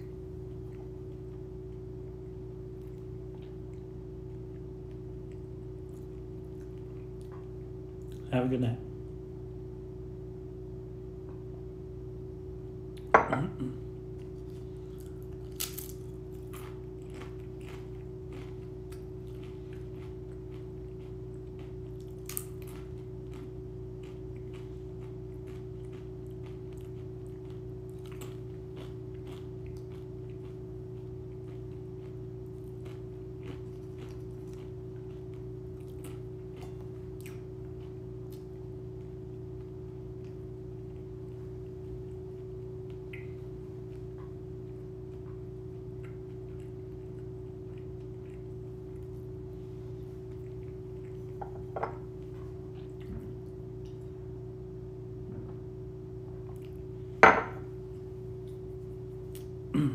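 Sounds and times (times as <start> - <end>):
electrical hum: 0.0 - 59.9
glass set down on counter: 13.2 - 13.5, 51.4 - 52.0, 57.2 - 57.6
chips being eaten: 15.0 - 18.5.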